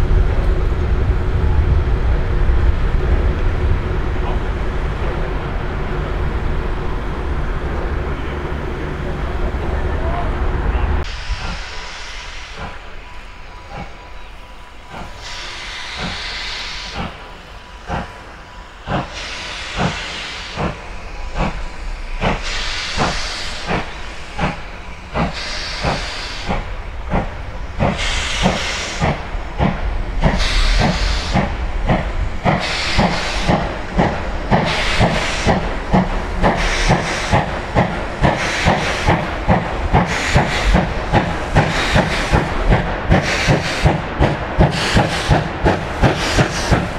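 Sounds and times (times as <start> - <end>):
steam hissing: 11.0 - 46.9
steam locomotive exhaust chuffs: 11.0 - 46.9.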